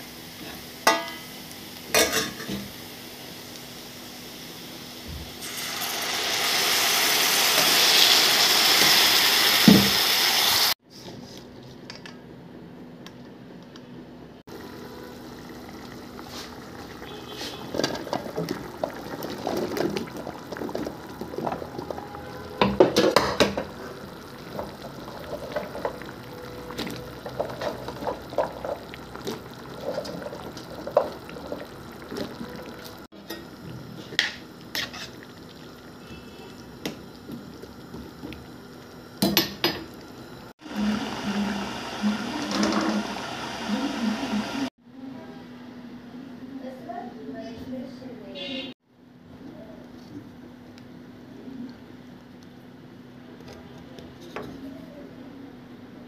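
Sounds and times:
sauce bubbling: 0:14.5 - 0:43.7.

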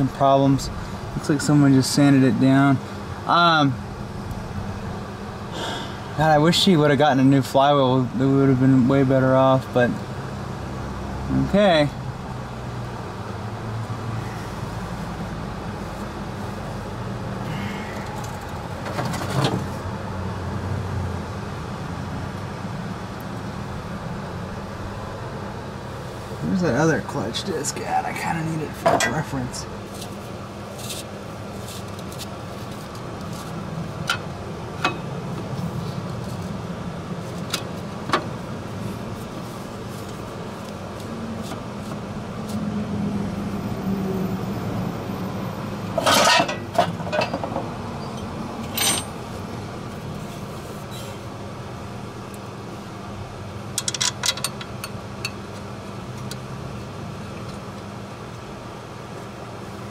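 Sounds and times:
steady low hum: 0:00.0 - 0:59.9
metal clinks and knocks: 0:46.0 - 0:49.2.

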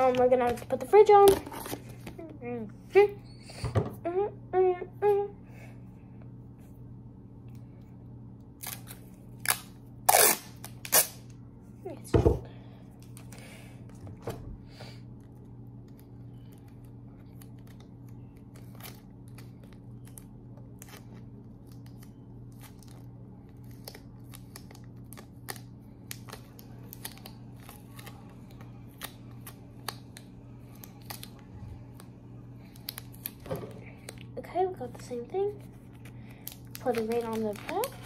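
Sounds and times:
adhesive tape crackling: 0:08.6 - 0:11.3, 0:36.3 - 0:38.0.

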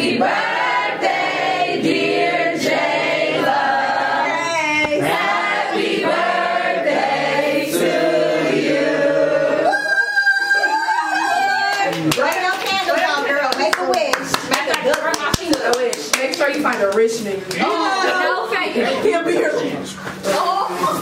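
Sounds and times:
people singing long held notes: 0:00.0 - 0:09.9.

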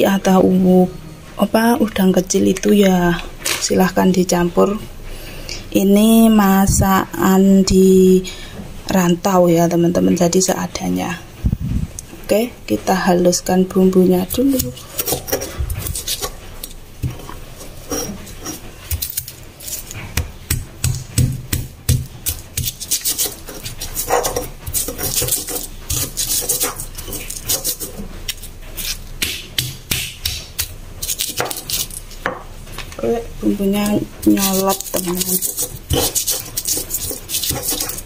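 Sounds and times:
pestle scraping in mortar: 0:14.2 - 0:38.0
stone pestle knocking on stone: 0:20.2 - 0:22.8.

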